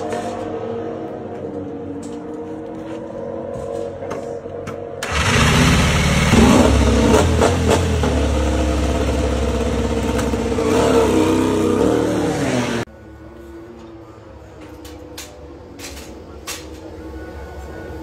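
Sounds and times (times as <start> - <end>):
motorcycle engine revving: 5.0 - 12.9.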